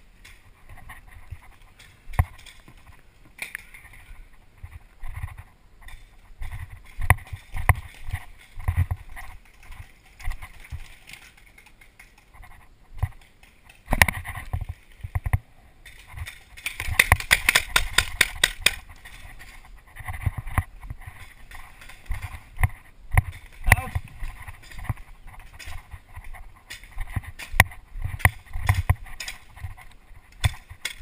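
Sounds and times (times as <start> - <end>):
paintball marker rapid firing: 16.7 - 18.8.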